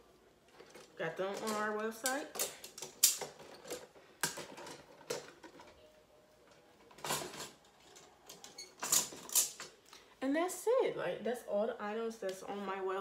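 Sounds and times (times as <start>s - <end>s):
plastic packaging rustling and clacking: 0.5s - 5.9s.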